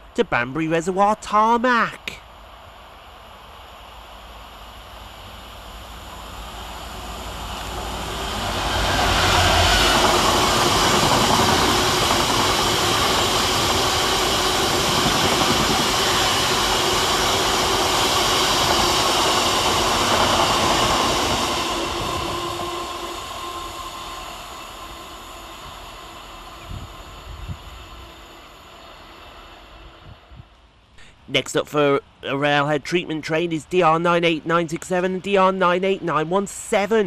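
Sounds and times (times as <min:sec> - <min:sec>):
diesel locomotive engine rumble: 0:02.0 - 0:37.0
train wheels rumbling on rails: 0:02.1 - 0:30.9.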